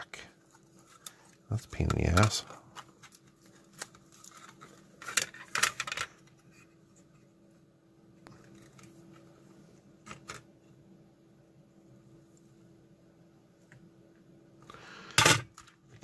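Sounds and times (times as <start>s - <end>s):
faint steady hum: 0.0s - 16.0s
plastic case clicks and clatter: 1.8s - 6.4s.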